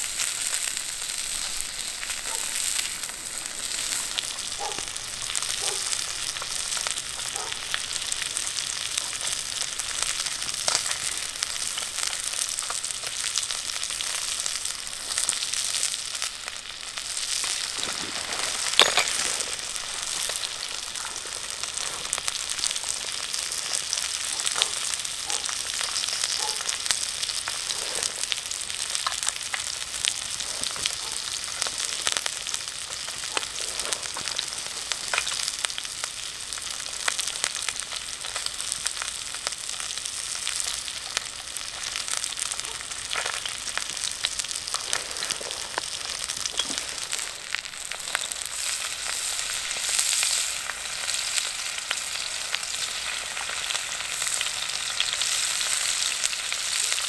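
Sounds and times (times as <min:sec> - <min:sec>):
food sizzling over fire: 0:00.0 - 0:57.0
pops and crackles: 0:00.0 - 0:57.0.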